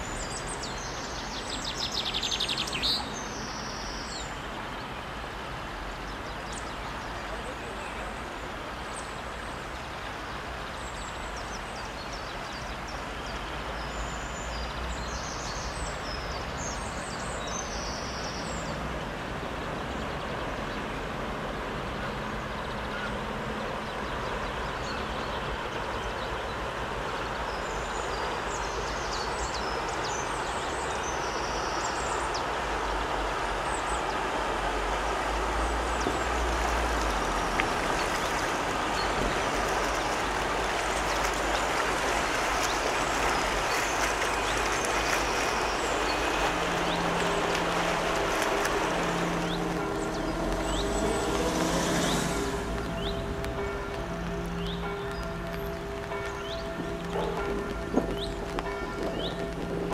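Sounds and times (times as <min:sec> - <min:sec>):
barge engine and water noise: 0:00.0 - 0:59.9
birds chirping: 0:06.0 - 0:59.9.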